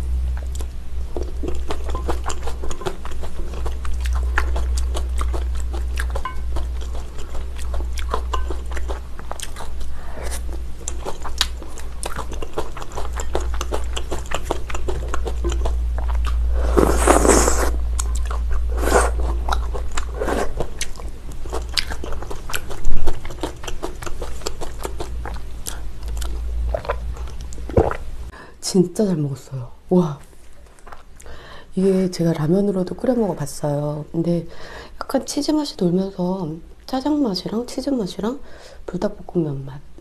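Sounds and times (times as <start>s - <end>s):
steady low hum: 0.0s - 40.0s
chewing and mouth sounds: 0.3s - 28.1s, 30.4s - 31.4s.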